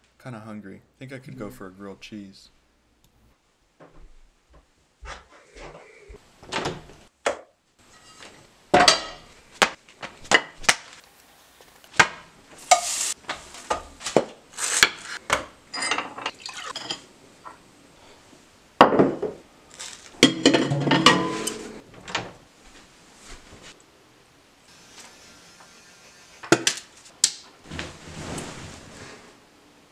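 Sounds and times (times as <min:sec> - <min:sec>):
pan and utensils clinking: 0:15.7 - 0:17.1, 0:20.2 - 0:21.8.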